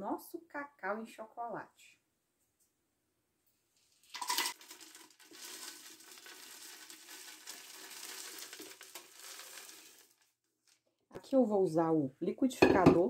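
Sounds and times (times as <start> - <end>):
beans pouring into plastic jar: 4.0 - 10.4.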